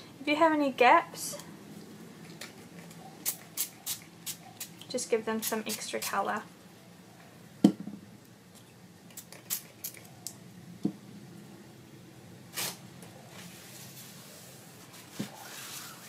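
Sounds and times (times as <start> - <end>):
faint steady hum: 0.0 - 16.0
paper towel rustle: 12.5 - 16.0.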